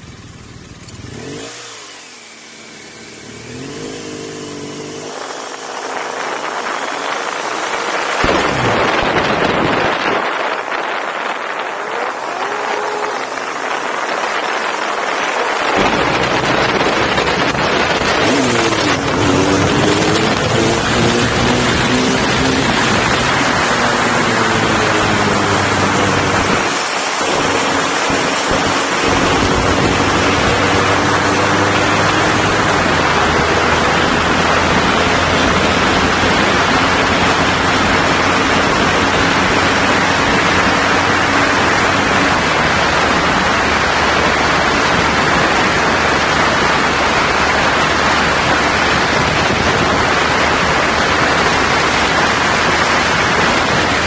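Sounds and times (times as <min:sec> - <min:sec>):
faint motorcycle engine: 0:00.0 - 0:09.2
road noise: 0:00.0 - 0:54.0
wind rush on microphone: 0:03.5 - 0:54.0.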